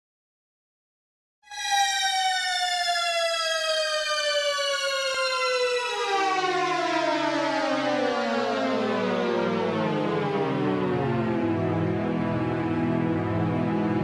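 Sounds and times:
siren-like tone gliding down: 0:01.4 - 0:13.2
low held music notes: 0:10.2 - 0:14.0.

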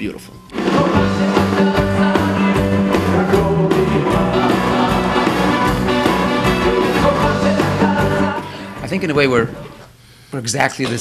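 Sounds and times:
live band music with steady beat: 0:00.5 - 0:09.8.

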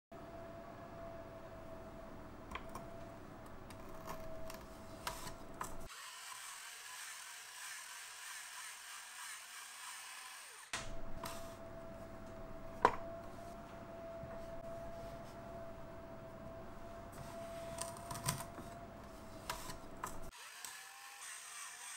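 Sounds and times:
potato peeler motor whirring: 0:19.4 - 0:21.9.

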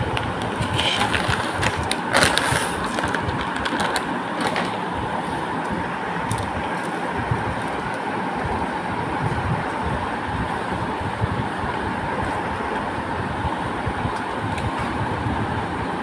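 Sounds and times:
background rumble and hiss: 0:00.0 - 0:16.0
plastic packet crinkling: 0:00.6 - 0:04.8.

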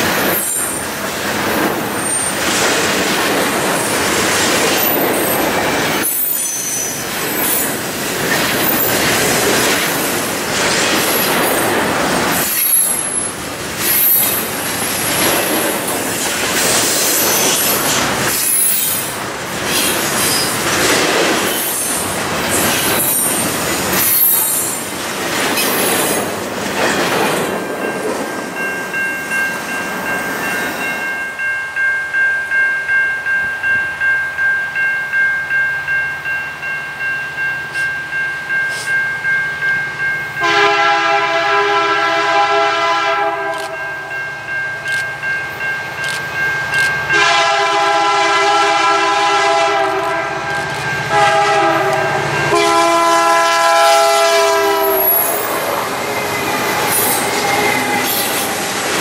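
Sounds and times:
crossing bell ringing: 0:00.0 - 0:59.0
freight train wheels rumbling: 0:00.0 - 0:59.0
locomotive air horn blasts: 0:40.4 - 0:43.9, 0:47.1 - 0:50.5, 0:51.1 - 0:55.4.

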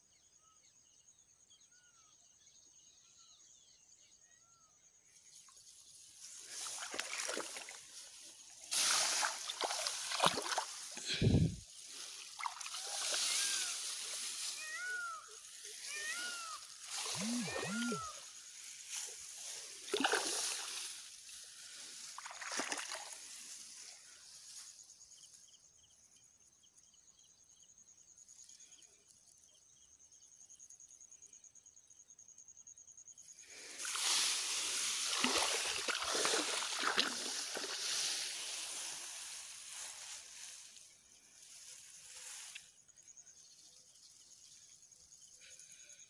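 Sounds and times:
water sloshing and splashing: 0:06.3 - 0:14.2, 0:19.8 - 0:21.1, 0:22.1 - 0:23.5, 0:33.8 - 0:39.0
wading steps through water: 0:06.4 - 0:13.7, 0:19.8 - 0:21.1, 0:22.1 - 0:23.4, 0:33.8 - 0:39.8
faint high whine: 0:16.0 - 0:18.4.

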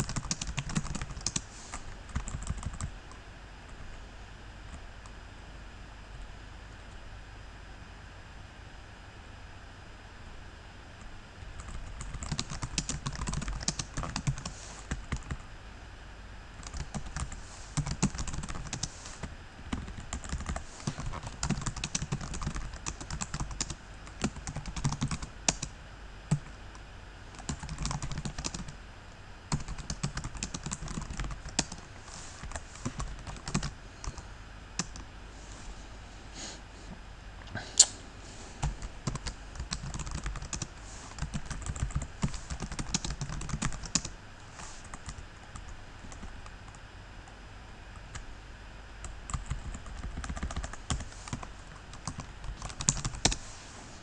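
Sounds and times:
typing on computer keyboard: 0:00.0 - 0:02.9, 0:11.6 - 0:15.4, 0:16.6 - 0:18.9, 0:19.7 - 0:25.7, 0:27.3 - 0:28.8, 0:29.5 - 0:31.8, 0:32.4 - 0:34.2, 0:38.7 - 0:44.1, 0:49.3 - 0:53.4.

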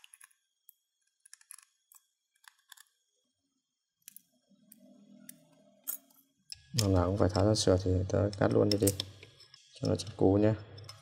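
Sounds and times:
screwdriver and tweezers clicking on metal: 0:08.2 - 0:10.0.

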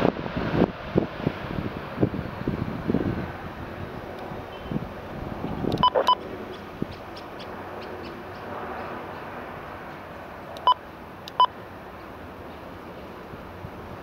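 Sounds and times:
distant jet engine noise: 0:00.0 - 0:14.0
wind hiss: 0:00.0 - 0:14.0
short electronic beeps: 0:05.8 - 0:06.2.

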